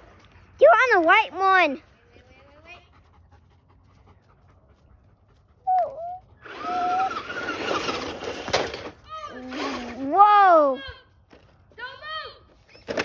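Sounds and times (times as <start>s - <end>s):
rc truck motor whine: 6.4s - 10.1s.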